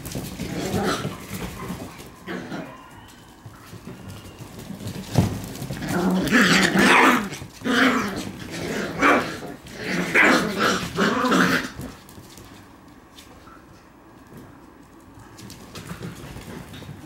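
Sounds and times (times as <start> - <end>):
puppies growling while play-fighting: 0.0 - 2.9, 4.6 - 12.2.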